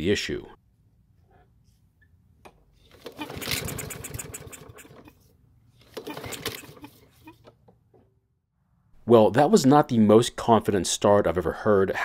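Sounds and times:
lawn mower engine starting: 0:02.8 - 0:05.2, 0:05.8 - 0:07.5.

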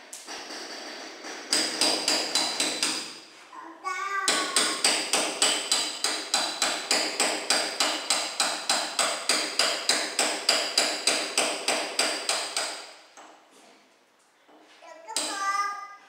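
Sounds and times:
hammer striking tiles: 0:00.1 - 0:03.1, 0:04.3 - 0:12.8.

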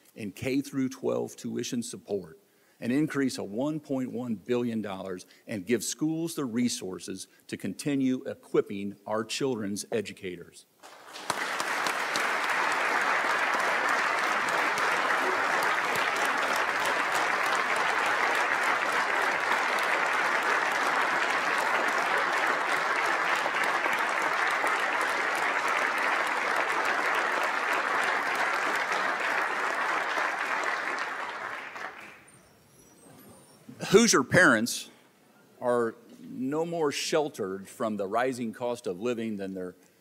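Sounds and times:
large crowd applauding: 0:10.8 - 0:32.3.

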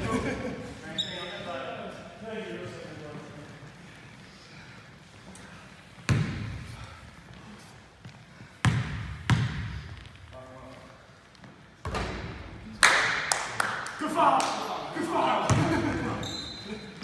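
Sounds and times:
basketball bouncing on gym floor: 0:06.1 - 0:06.6, 0:08.6 - 0:10.2, 0:11.8 - 0:12.5, 0:15.5 - 0:16.1.

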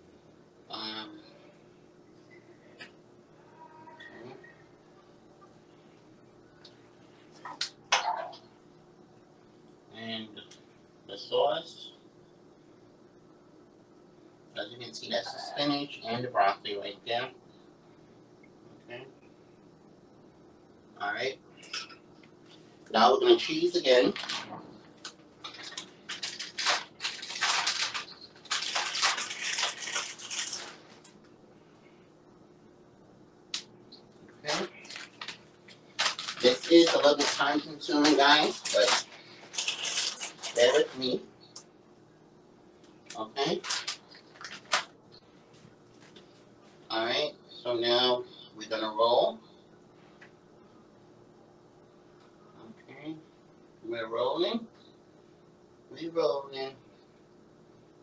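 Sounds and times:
cheese shaken from container: 0:25.5 - 0:30.8.

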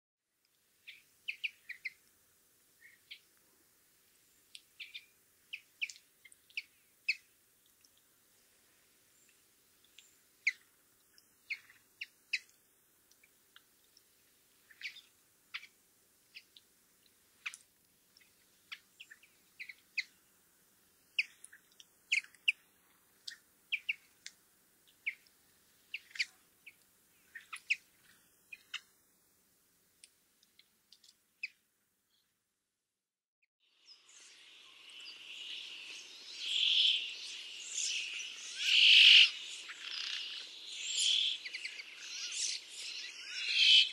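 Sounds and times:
buzzy drawn-out bird song: 0:00.8 - 0:02.0, 0:02.8 - 0:03.3, 0:04.2 - 0:07.4, 0:14.6 - 0:16.7, 0:24.9 - 0:28.9, 0:33.6 - 0:43.9
short sharp bird calls: 0:34.6 - 0:43.9.

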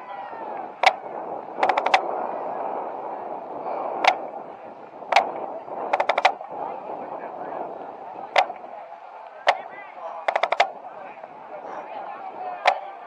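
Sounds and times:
steady murmur: 0:00.0 - 0:13.0
drumstick strokes on marching drum: 0:01.6 - 0:02.0, 0:05.9 - 0:06.4, 0:08.4 - 0:08.6, 0:09.5 - 0:09.7, 0:10.3 - 0:10.7.

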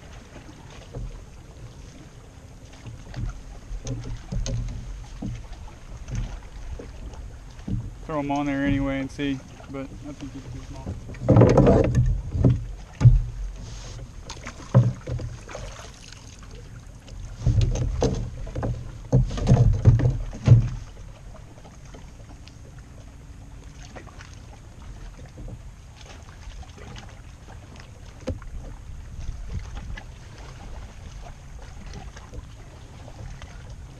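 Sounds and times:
knocks and rustling: 0:02.9 - 0:06.9, 0:09.9 - 0:15.6, 0:17.1 - 0:21.0.

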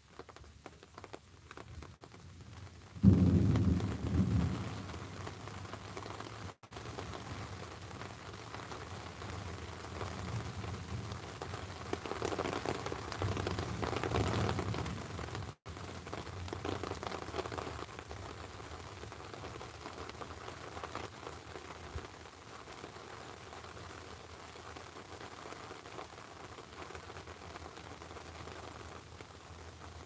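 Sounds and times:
steady rain falling: 0:00.0 - 0:30.0.

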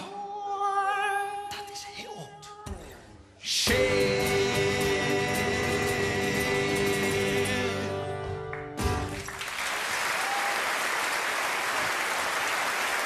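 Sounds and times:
acoustic guitars chord ringing: 0:03.7 - 0:09.3
audience applause: 0:08.5 - 0:13.0.

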